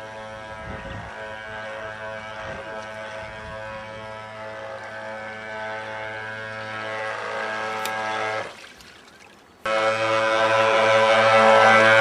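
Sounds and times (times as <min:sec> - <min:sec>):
electric motor whine: 0:00.0 - 0:08.5.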